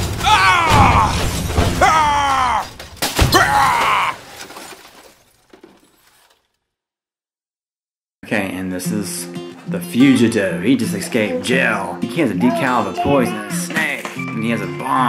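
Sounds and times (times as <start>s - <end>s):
crash noise with sharp impacts: 0.0s - 6.6s
person crying out: 3.3s - 4.2s.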